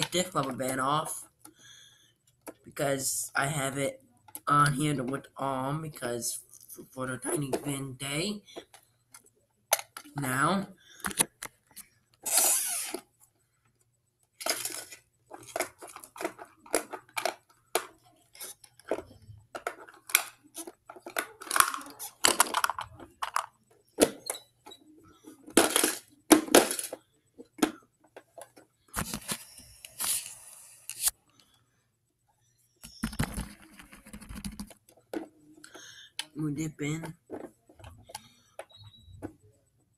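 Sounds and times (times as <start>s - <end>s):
plastic toy clicks and rattles: 14.4s - 24.3s, 25.5s - 27.0s.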